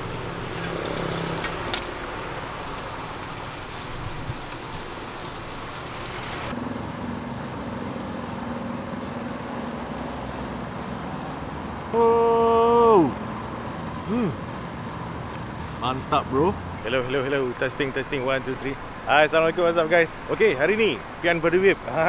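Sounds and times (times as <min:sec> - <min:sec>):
food sizzling on griddle: 0:00.0 - 0:06.6.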